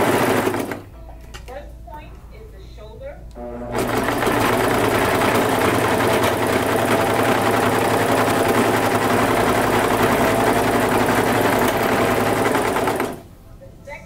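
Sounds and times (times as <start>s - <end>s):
sewing machine stitching: 0.0s - 0.9s, 3.5s - 13.3s.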